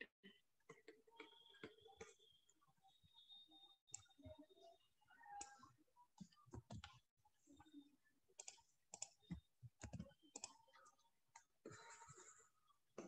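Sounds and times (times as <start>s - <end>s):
computer mouse and keyboard clicks: 5.2s - 7.0s, 8.4s - 12.0s.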